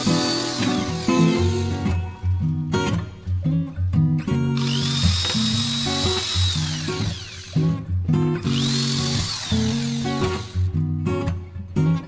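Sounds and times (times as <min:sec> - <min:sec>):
electric hand drill whining: 0:00.0 - 0:02.0, 0:04.6 - 0:07.8, 0:08.5 - 0:10.7
guitar music: 0:00.0 - 0:12.0.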